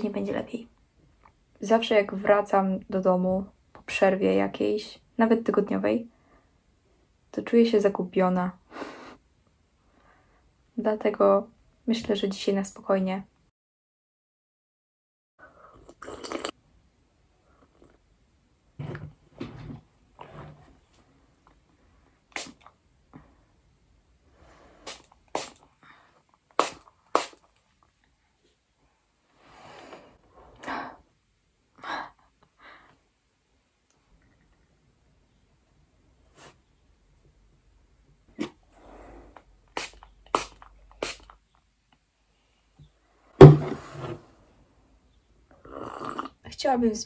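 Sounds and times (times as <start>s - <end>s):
spray bottle bursts: 24.9s - 25.6s, 26.6s - 27.4s, 39.7s - 41.3s.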